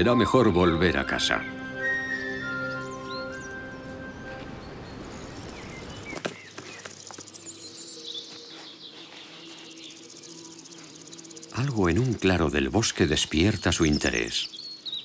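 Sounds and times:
held music notes: 0:00.0 - 0:05.5
birds chirping: 0:00.0 - 0:15.0.

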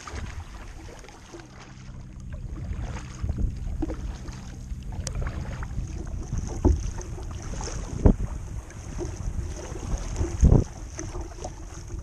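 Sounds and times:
water sloshing against kayak hull: 0:00.0 - 0:12.0
wind rumbling on microphone: 0:00.0 - 0:12.0.

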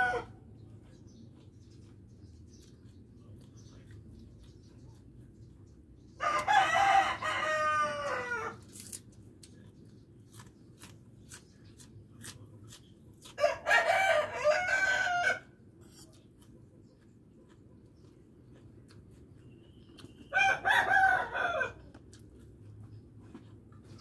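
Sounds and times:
rooster crowing: 0:00.0 - 0:00.4, 0:06.2 - 0:08.6, 0:13.4 - 0:15.5, 0:20.3 - 0:21.9.

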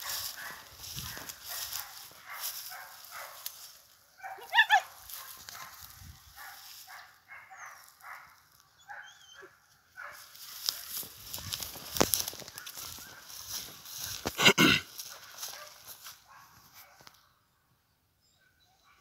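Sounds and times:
dog barking: 0:00.0 - 0:11.1, 0:15.0 - 0:17.2
footsteps through dry grass: 0:00.0 - 0:17.2.

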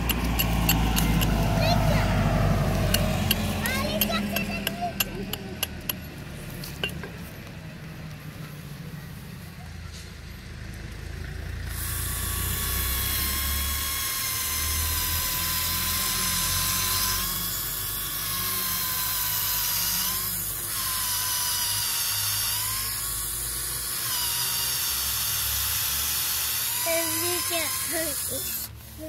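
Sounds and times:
cordless drill boring into wood: 0:00.0 - 0:02.0, 0:11.7 - 0:29.0.

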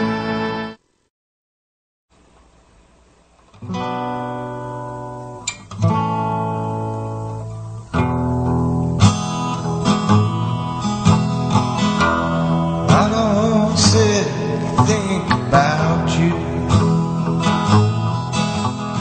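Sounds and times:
acoustic guitar strumming: 0:03.5 - 0:19.0.

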